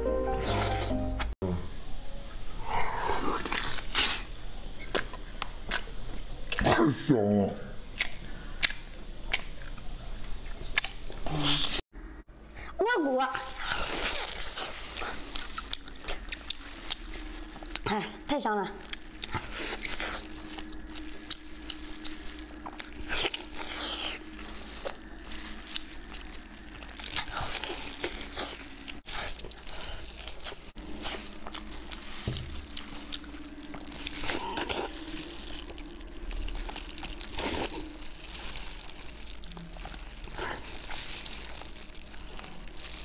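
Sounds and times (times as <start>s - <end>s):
plastic gloves crinkling: 12.9s - 43.0s
chewing and biting meat: 13.5s - 18.2s, 18.8s - 43.0s.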